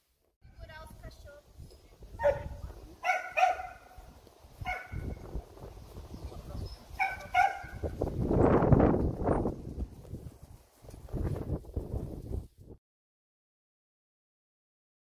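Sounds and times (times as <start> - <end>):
dog barking high-pitched: 2.2 - 4.0, 4.6 - 5.1, 7.0 - 7.8.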